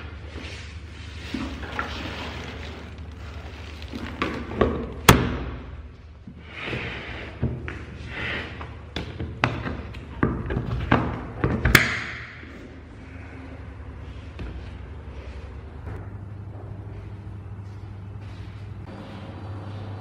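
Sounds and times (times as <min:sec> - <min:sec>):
rubbing and sliding: 0:00.3 - 0:04.5.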